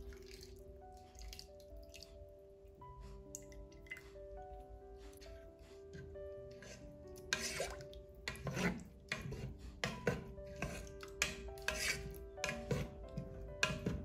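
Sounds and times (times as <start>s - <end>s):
soft background music: 0.0s - 14.0s
wooden spatula scraping pot: 5.2s - 14.0s.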